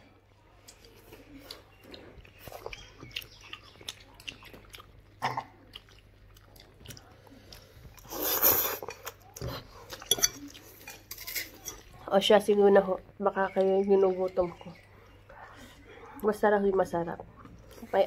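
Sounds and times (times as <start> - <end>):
person chewing: 0.6 - 12.0
loud noodle slurp: 8.0 - 8.9.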